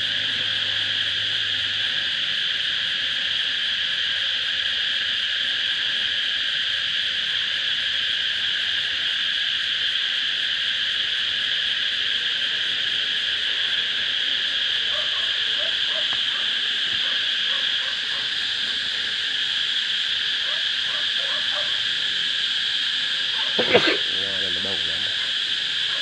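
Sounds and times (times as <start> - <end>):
insects high shrill drone: 0.0 - 26.0.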